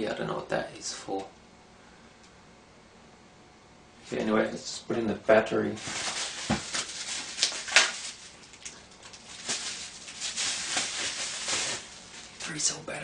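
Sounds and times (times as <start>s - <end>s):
plastic wrapping crinkling: 5.7s - 12.6s.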